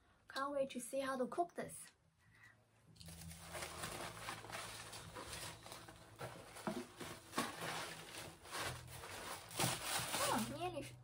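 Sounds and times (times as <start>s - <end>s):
packing material rustling: 3.0s - 10.8s
hands rummaging in cardboard box: 3.1s - 10.7s.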